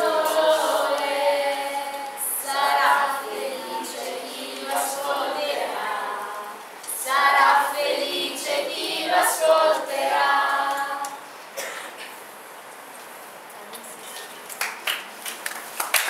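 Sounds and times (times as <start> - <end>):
voices singing unaccompanied: 0.0 - 11.3.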